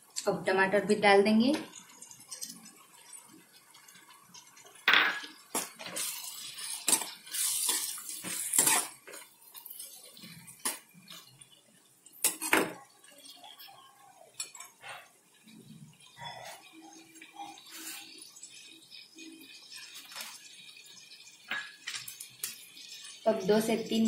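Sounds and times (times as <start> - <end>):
metal ladle scraping metal pan: 5.8 - 10.4.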